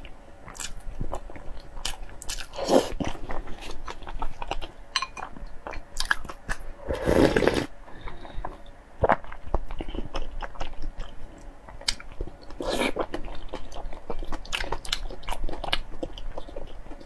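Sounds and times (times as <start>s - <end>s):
chewing with mouth clicks: 0.5s - 6.6s, 8.0s - 17.0s
slurping broth: 6.8s - 7.7s.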